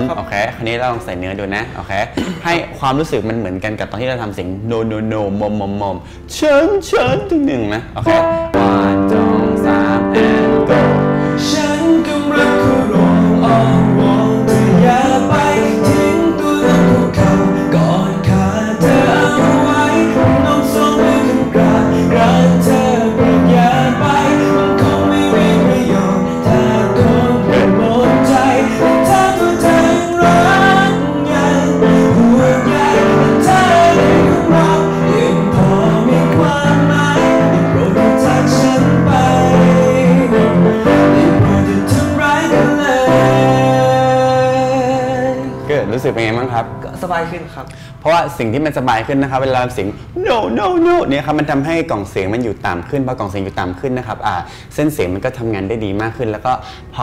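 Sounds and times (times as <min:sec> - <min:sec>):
instrumental accompaniment: 0:06.9 - 0:49.1
man singing into a microphone: 0:08.1 - 0:46.4.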